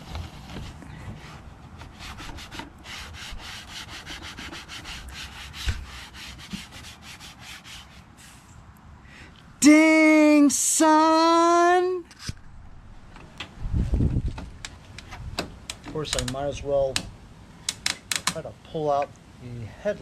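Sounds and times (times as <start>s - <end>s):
rag rubbing on plastic: 0.0s - 8.4s.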